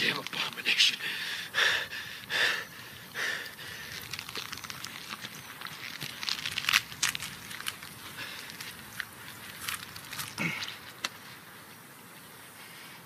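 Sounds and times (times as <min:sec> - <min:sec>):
dry material rustling and crinkling: 0:03.6 - 0:11.4.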